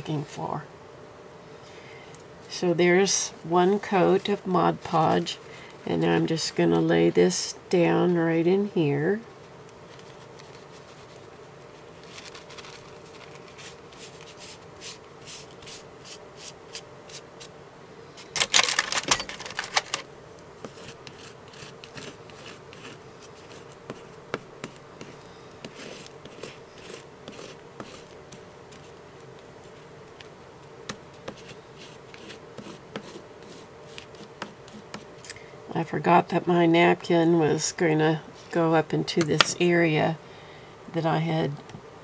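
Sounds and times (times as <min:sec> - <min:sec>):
faint steady hum: 0:00.0 - 0:42.0
paper napkin rustling and crinkling: 0:09.8 - 0:17.2, 0:18.2 - 0:20.0.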